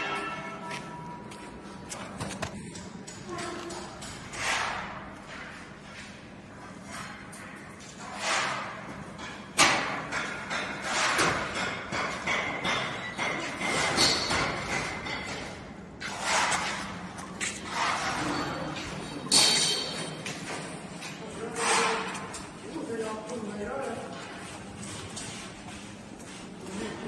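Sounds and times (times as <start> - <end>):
knocks on sheet metal: 9.6 - 15.4.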